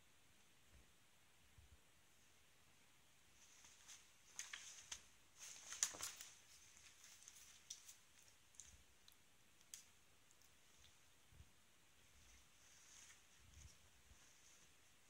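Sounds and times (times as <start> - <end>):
kitten clawing and rustling: 3.4 - 11.2, 12.0 - 15.0.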